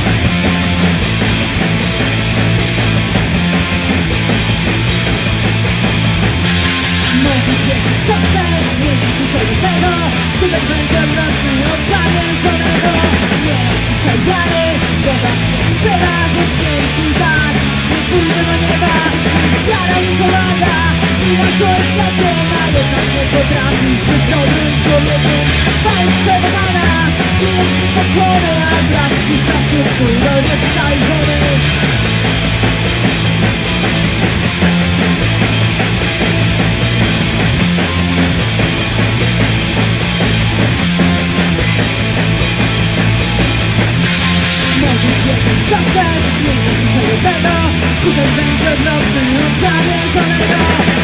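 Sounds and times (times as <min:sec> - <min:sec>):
bass guitar: 0:00.0 - 0:51.0
drums: 0:00.0 - 0:51.0
electric guitar: 0:00.0 - 0:51.0
woman singing into a microphone: 0:07.2 - 0:31.6, 0:44.8 - 0:51.0.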